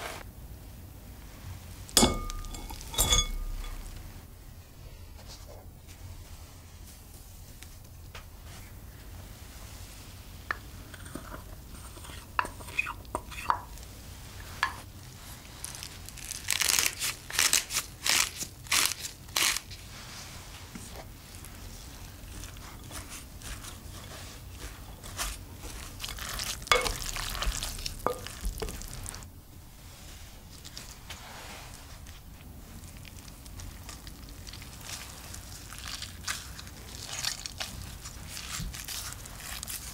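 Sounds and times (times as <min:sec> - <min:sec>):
wooden spoon stirring in glass bowl: 0:02.0 - 0:04.2, 0:21.7 - 0:29.2.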